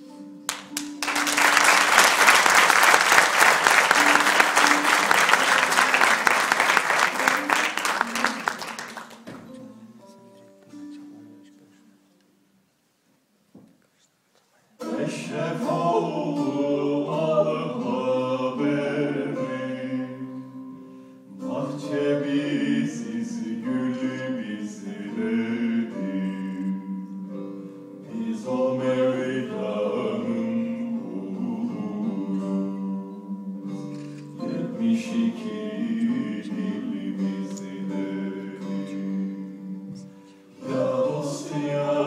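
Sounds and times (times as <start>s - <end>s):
men singing: 14.8s - 20.4s, 21.4s - 27.2s, 28.0s - 42.0s.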